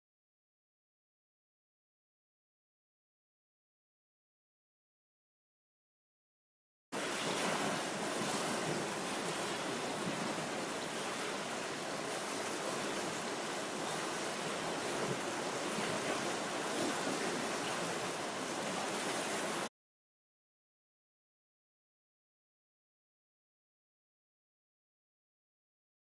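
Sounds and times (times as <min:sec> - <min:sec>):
floodwater rushing: 0:07.0 - 0:19.7.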